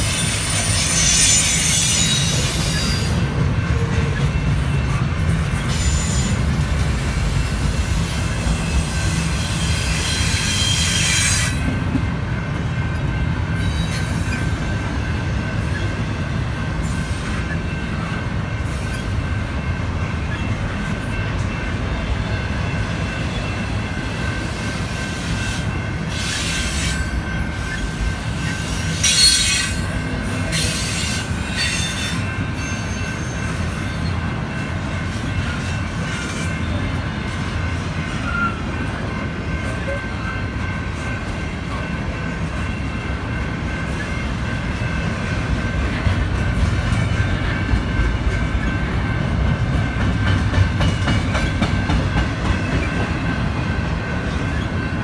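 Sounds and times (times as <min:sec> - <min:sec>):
high wheel screeching: 0:00.0 - 0:03.2, 0:08.7 - 0:11.6
steel wheels rumbling on rail: 0:00.0 - 0:55.0.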